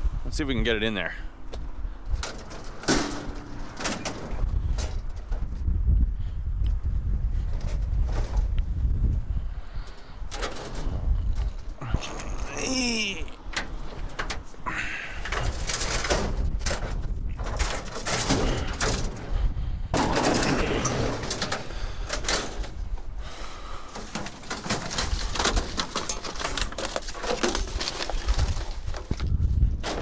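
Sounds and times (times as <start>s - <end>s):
scrap metal clattering and scraping: 2.0s - 5.6s, 9.7s - 30.0s.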